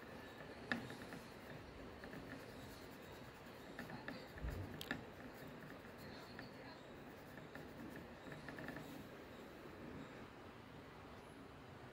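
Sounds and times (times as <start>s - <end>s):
paintbrush scratching on canvas: 0.0s - 9.4s.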